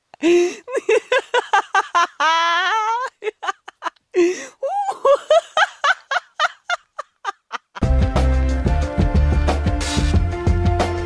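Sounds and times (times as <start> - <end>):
person laughing high-pitched: 0.2 - 7.8.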